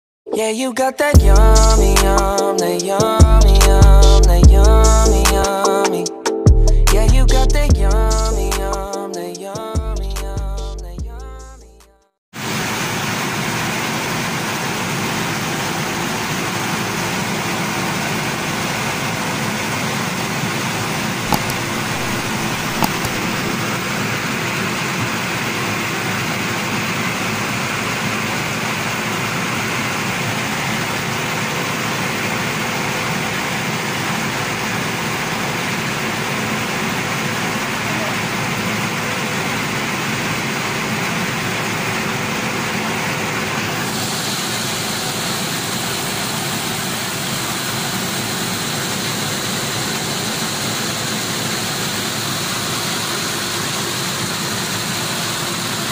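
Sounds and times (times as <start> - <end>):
brief knocks: 21.3 - 23.4
rice mill running: 26.5 - 55.9.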